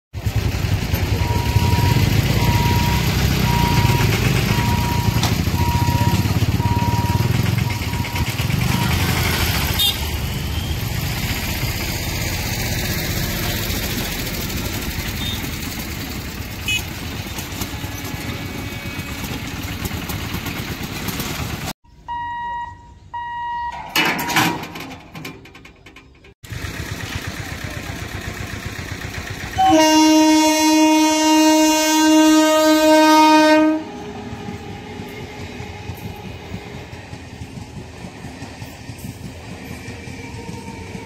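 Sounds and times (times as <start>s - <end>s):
short electronic beeps: 1.2s - 9.9s, 22.0s - 24.5s.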